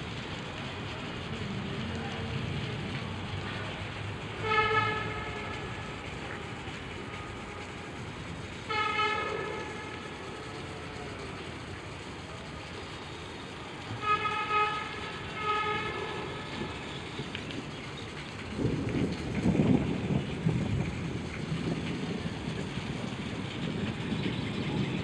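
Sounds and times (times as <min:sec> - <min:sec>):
horn blasts: 0:04.4 - 0:07.7, 0:08.6 - 0:11.1, 0:13.9 - 0:16.9.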